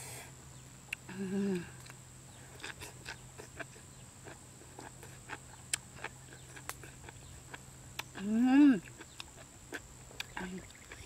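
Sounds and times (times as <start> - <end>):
wet chewing clicks: 2.6 - 11.0
lip smacks: 4.8 - 7.3.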